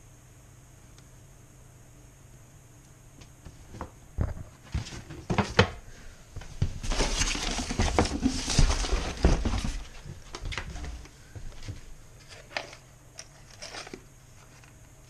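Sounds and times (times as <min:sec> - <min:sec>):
packing paper crinkling: 0:06.8 - 0:10.9.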